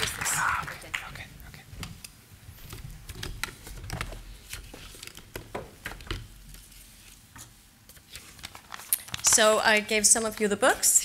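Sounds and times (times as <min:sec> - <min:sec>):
paper rustling and shuffling: 0:02.5 - 0:10.6.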